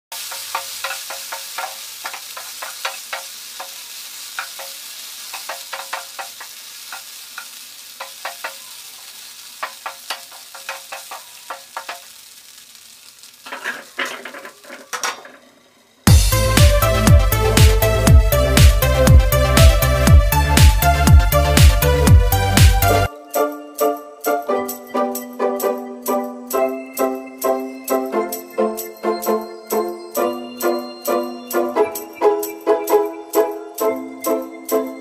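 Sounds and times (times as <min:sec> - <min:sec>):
beans sizzling in a pan: 0:00.0 - 0:35.0
wooden spatula scraping a pan: 0:00.2 - 0:12.2, 0:13.2 - 0:15.5
electronic intro music: 0:16.1 - 0:25.8.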